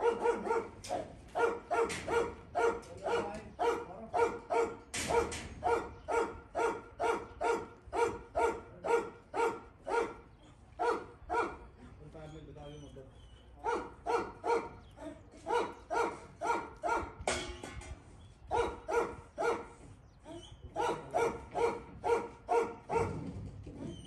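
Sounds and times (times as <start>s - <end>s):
dog barking: 0.0s - 11.7s, 13.6s - 14.8s, 15.4s - 17.2s, 18.5s - 19.8s, 20.8s - 23.4s.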